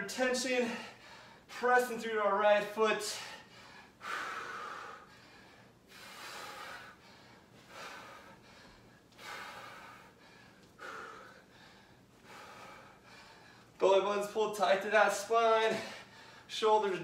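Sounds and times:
man breathing hard: 0.5 - 1.5, 3.0 - 13.8, 15.7 - 16.5.

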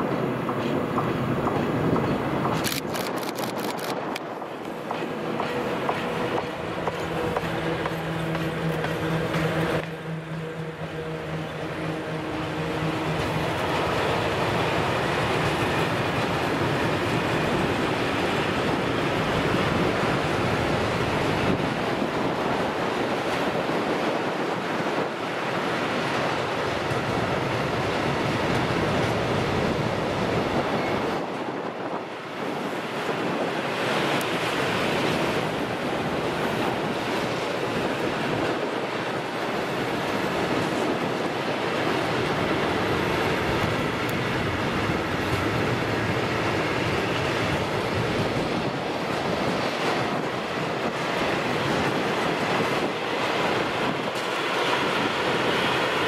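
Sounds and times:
train wheels rumbling and rattling: 0.0 - 56.0.

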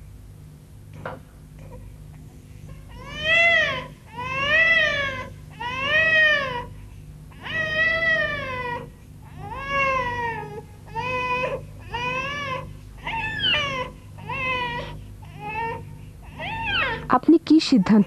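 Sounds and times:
faint low hum: 0.0 - 18.0
infant crying: 2.9 - 6.7, 7.3 - 17.1.

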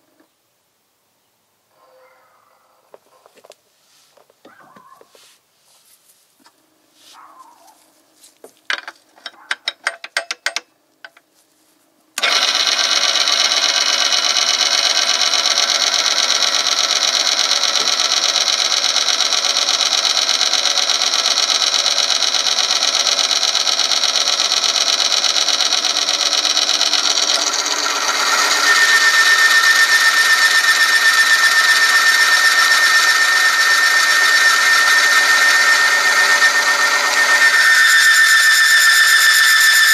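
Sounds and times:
metal roller running noise: 12.2 - 39.9
high squeal: 27.7 - 39.9.

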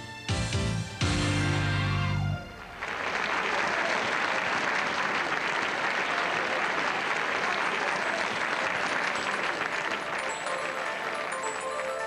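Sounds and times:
audience applauding: 2.4 - 12.0.

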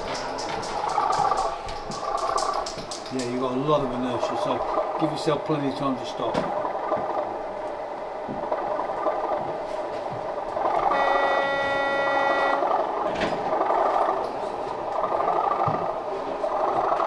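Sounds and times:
model train horn: 10.9 - 12.7.

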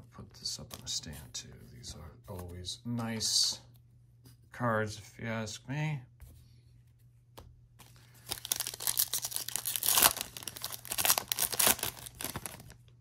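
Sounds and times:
foil wrapper tearing: 8.2 - 12.8.

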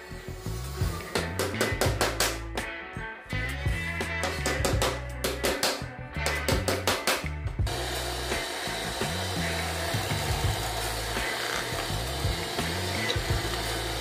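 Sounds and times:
background music with drums and bass: 0.0 - 14.0
power drill boring into wood: 7.7 - 14.0.

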